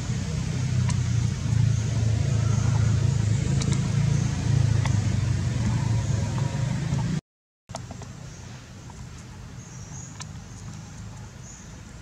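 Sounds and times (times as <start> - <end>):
vehicle engine running: 0.0 - 7.2.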